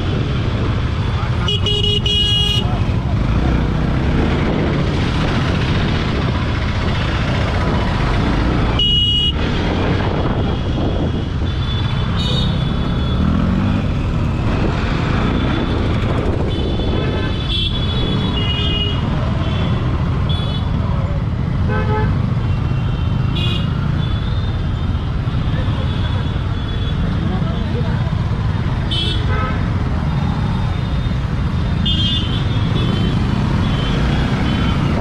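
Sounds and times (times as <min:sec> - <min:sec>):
traffic: 0:00.0 - 0:35.0
wind: 0:00.0 - 0:35.0
vehicle horns beeping: 0:01.3 - 0:02.7, 0:08.7 - 0:09.4, 0:11.4 - 0:13.4.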